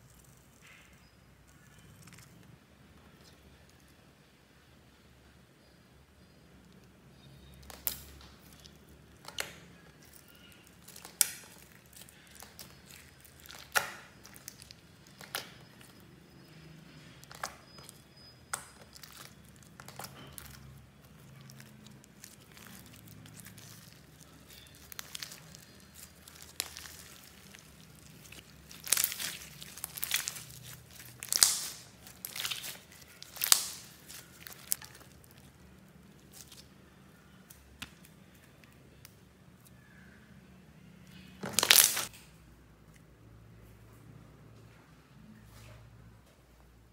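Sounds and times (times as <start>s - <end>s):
slime sticky pops and crackles: 7.6s - 16.4s, 17.2s - 35.4s.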